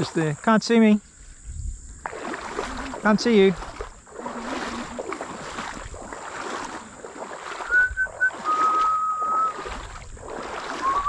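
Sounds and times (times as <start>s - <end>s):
wading through shallow water: 0.0s - 11.0s
whistled note: 7.7s - 9.6s, 10.8s - 11.0s.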